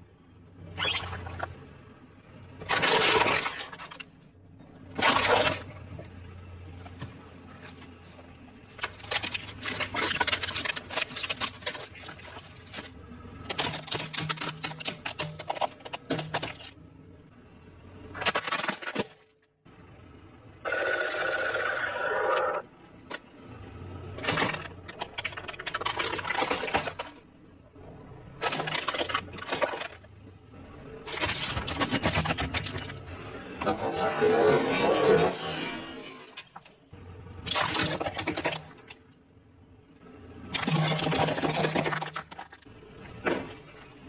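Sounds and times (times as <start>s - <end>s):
plastic toys cracking under tyre: 8.7s - 16.8s, 18.1s - 19.4s, 24.2s - 27.2s, 37.4s - 39.2s, 40.5s - 43.5s.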